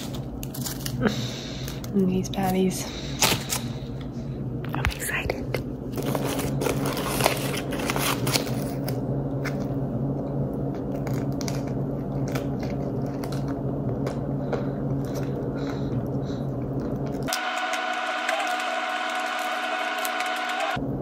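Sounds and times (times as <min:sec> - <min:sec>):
foil wrapper crinkling: 0:00.0 - 0:02.6, 0:06.0 - 0:09.6
steady low hum: 0:00.0 - 0:21.0
biting and chewing: 0:06.0 - 0:20.5.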